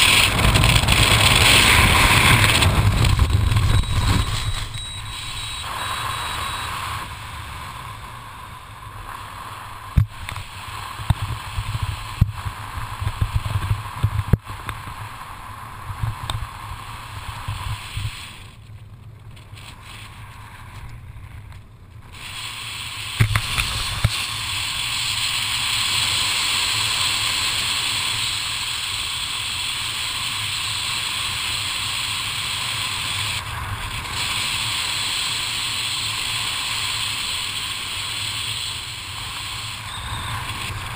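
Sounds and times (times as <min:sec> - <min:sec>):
wind rushing over microphone: 0:00.0 - 0:18.4.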